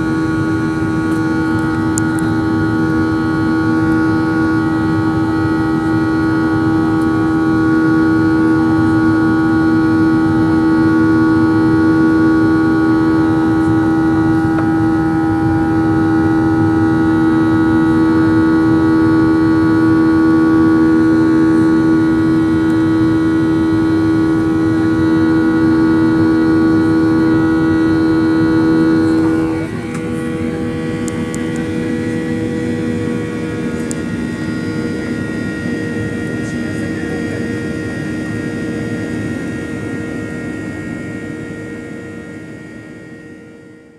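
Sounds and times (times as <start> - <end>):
jet engine drone: 0.0 - 43.9
whining tones: 11.6 - 40.0.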